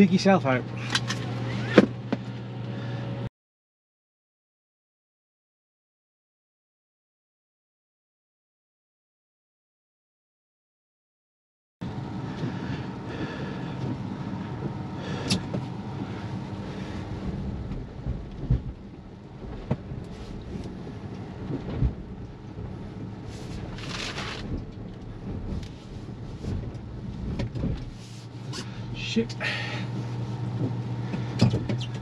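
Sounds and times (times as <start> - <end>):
knocks and thumps: 17.7 - 20.0, 30.6 - 32.0.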